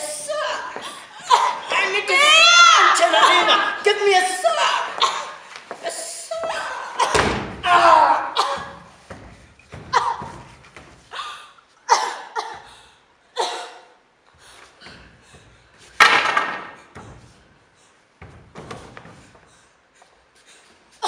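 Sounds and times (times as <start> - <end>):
short shouts or cries: 0.0 - 8.9
thuds on wooden stage: 7.0 - 7.6.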